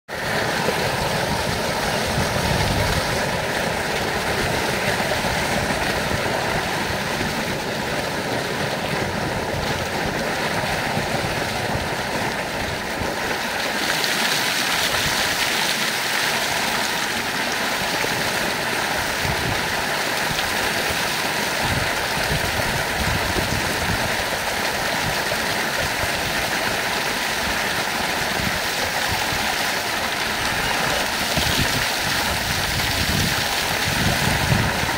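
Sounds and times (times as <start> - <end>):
water gushing into trough: 0.1 - 34.9.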